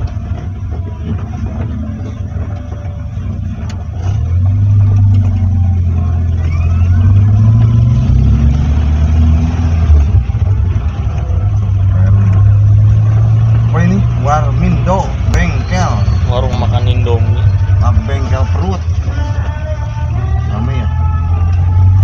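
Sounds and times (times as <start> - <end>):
vehicle engine accelerating: 0.0 - 22.0.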